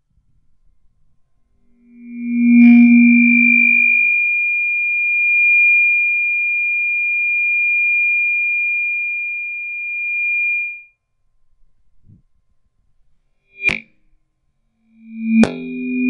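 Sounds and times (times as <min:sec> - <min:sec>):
audio feedback squeal: 0:01.7 - 0:10.9, 0:13.6 - 0:13.8, 0:14.9 - 0:16.0.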